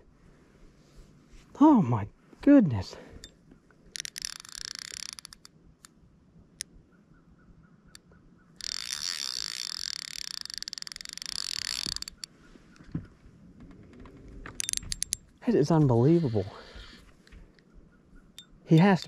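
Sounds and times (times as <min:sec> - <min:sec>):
fishing reel ticking buzz: 0:03.9 - 0:05.5, 0:08.6 - 0:12.3, 0:14.6 - 0:15.3, 0:18.4 - 0:19.0.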